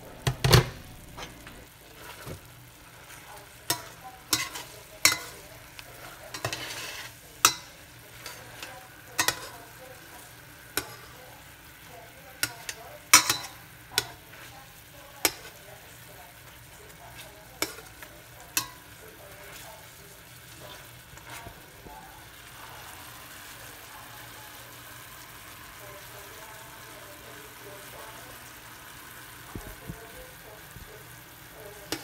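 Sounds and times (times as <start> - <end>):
chicken sizzling in a pan: 0.0 - 32.0
metal tongs clacking on pan: 3.4 - 11.4, 12.0 - 21.6.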